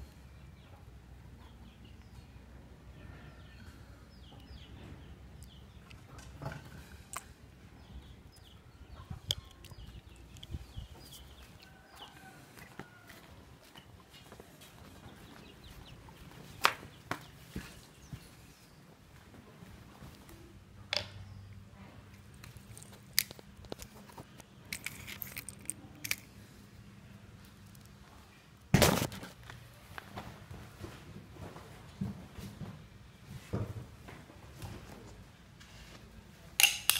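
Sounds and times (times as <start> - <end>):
birds chirping: 0.0 - 19.1.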